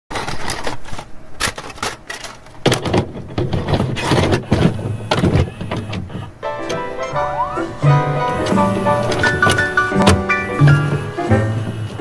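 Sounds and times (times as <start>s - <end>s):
crackling static glitch: 4.0s - 12.0s.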